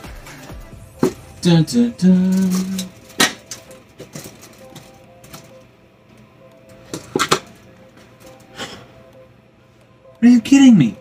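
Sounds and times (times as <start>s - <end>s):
faint background music: 0.0s - 11.0s
plastic bag rustling: 1.0s - 5.6s
food containers clicking and knocking: 2.4s - 5.6s, 6.8s - 7.6s.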